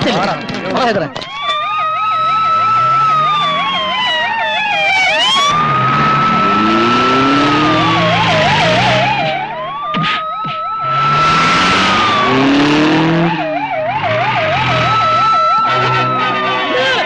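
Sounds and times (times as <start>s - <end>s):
police siren fast warble: 0.8s - 17.0s
police siren slow wail: 0.8s - 17.0s
vehicle engine revving: 4.9s - 17.0s.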